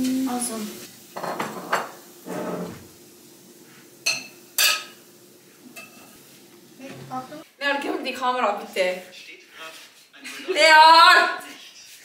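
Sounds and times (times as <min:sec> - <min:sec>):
dishes and cutlery clinking: 0:01.2 - 0:02.8, 0:04.0 - 0:05.0, 0:05.7 - 0:06.2.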